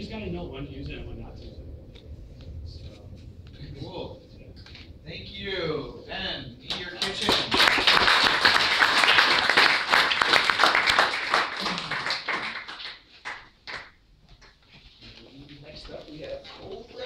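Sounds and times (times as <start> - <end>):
audience applauding: 6.7 - 14.6.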